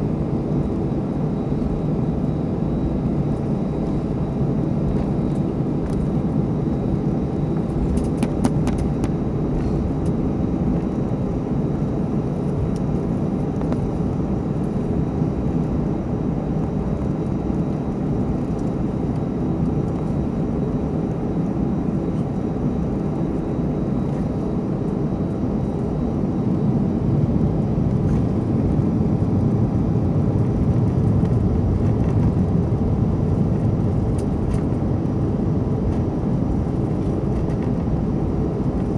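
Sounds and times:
jet engines rumbling: 0:00.0 - 0:38.9.

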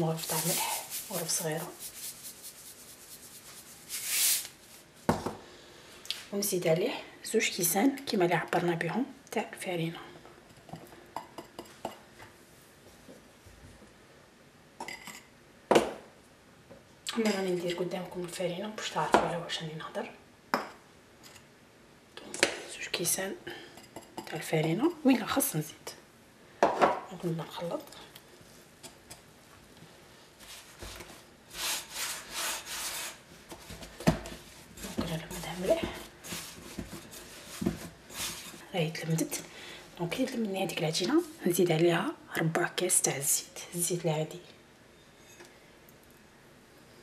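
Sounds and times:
dough scraping against glass bowl: 0:00.0 - 0:04.4.

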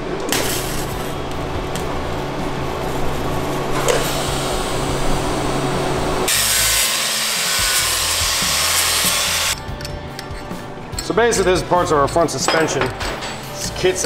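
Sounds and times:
welding arc hiss: 0:00.3 - 0:09.6
angle grinder grinding steel: 0:06.3 - 0:09.6.

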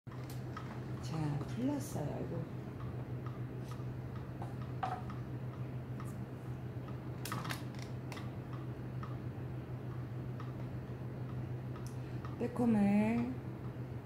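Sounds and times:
steady low hum: 0:00.1 - 0:14.0.

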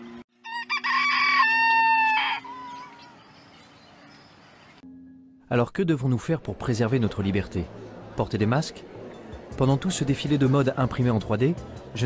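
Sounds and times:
rooster crowing: 0:00.4 - 0:03.2.

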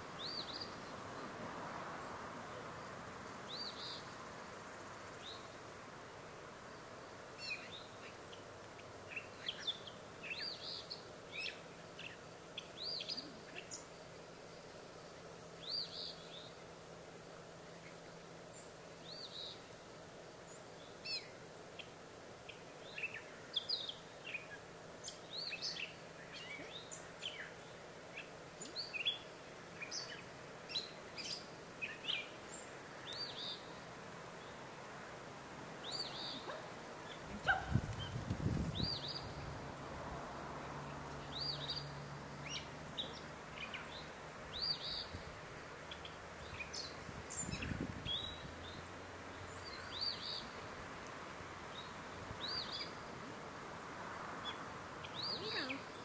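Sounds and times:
birds chirping and singing: 0:41.2 - 0:45.2.

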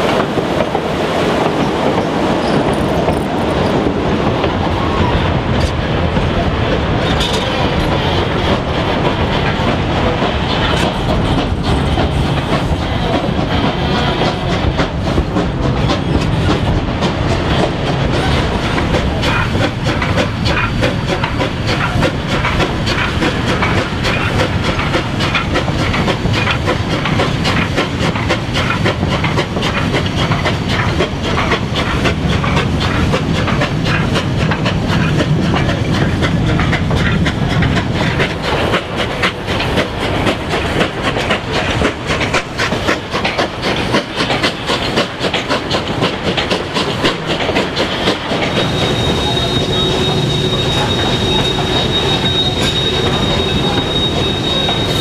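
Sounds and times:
steam locomotive working: 0:00.0 - 0:55.0
train coaches clacking over rail joints: 0:00.0 - 0:55.0
steam hiss: 0:18.2 - 0:55.0
high wheel squeal: 0:47.9 - 0:55.0.

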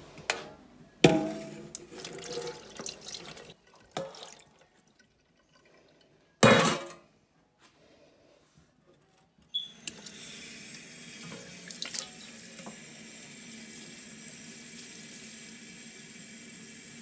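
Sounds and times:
metal bowl clanking: 0:00.3 - 0:04.7, 0:06.4 - 0:07.0
tap water running into steel bowl: 0:01.1 - 0:05.7, 0:09.8 - 0:17.0.

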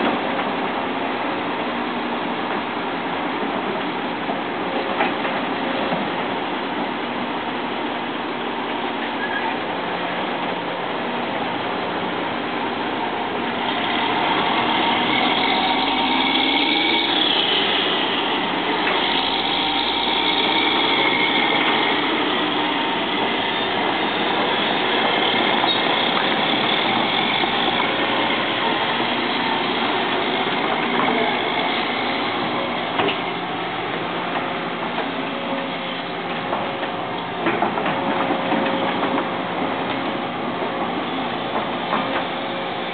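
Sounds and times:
excavator diesel engine: 0:00.0 - 0:42.9
hydraulic whining: 0:12.9 - 0:42.9.

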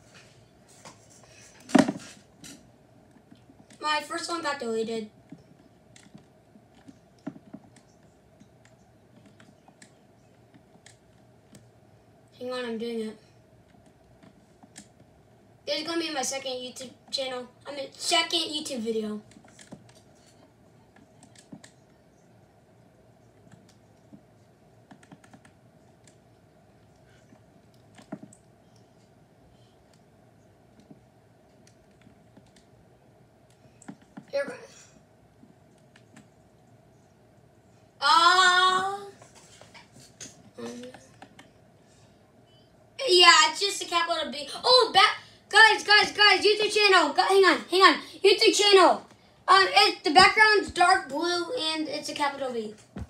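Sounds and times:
faint typing on keyboard: 0:05.1 - 0:12.4, 0:13.2 - 0:15.2, 0:19.2 - 0:34.4, 0:35.3 - 0:37.9, 0:39.1 - 0:42.7
typing on a keyboard: 0:24.9 - 0:26.2.

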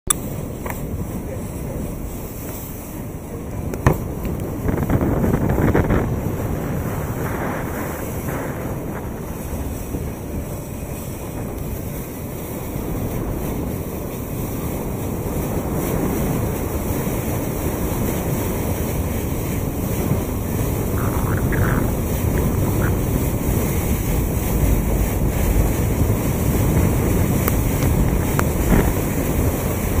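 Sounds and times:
water rushing along boat hull: 0:00.1 - 0:30.0
wind buffeting microphone: 0:00.1 - 0:30.0.

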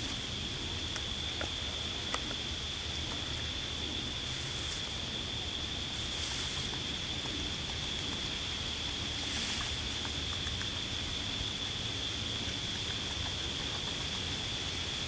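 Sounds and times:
high-pitched insect chorus: 0:00.0 - 0:15.0
low outdoor hiss: 0:00.0 - 0:15.0
soft rustles: 0:06.0 - 0:06.9.

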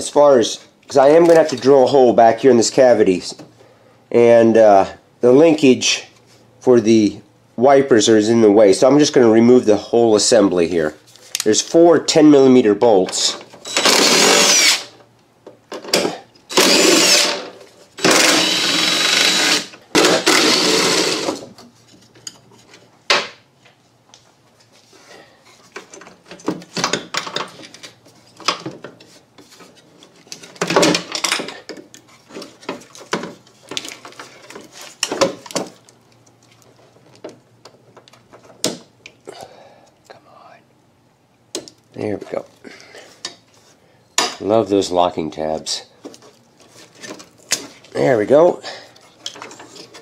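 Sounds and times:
power tool spinning out bolts: 0:13.6 - 0:15.0, 0:16.5 - 0:21.4
clicks and clunks of parts: 0:49.0 - 0:50.0.

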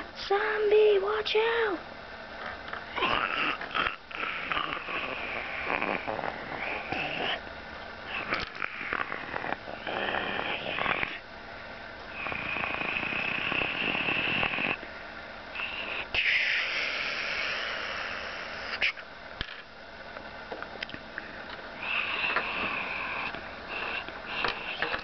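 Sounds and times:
person making hissing mouth sounds: 0:02.9 - 0:07.4, 0:08.1 - 0:11.2, 0:12.2 - 0:14.8, 0:15.6 - 0:19.1, 0:21.8 - 0:25.0.

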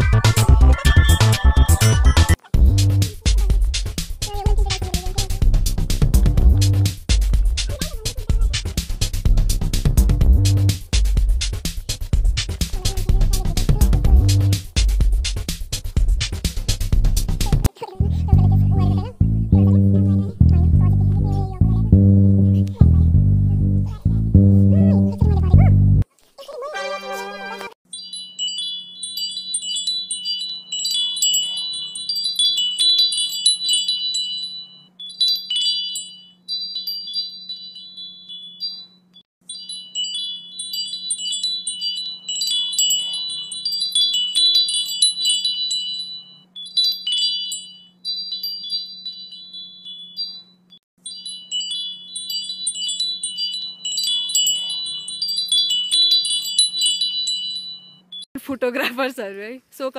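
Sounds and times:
wind chimes tinkling: 0:00.0 - 0:05.5, 0:27.8 - 0:58.3.

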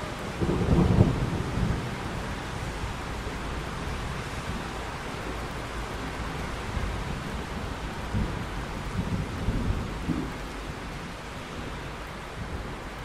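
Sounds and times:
steady rain hissing: 0:00.0 - 0:13.0
thunder rumbling: 0:00.1 - 0:04.8, 0:06.2 - 0:11.1.

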